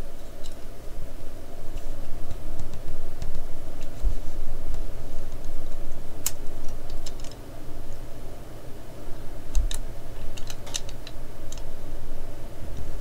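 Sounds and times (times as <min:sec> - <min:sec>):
low steady hum: 0:00.0 - 0:13.0
plastic parts clicking together: 0:06.2 - 0:07.4, 0:09.5 - 0:11.7.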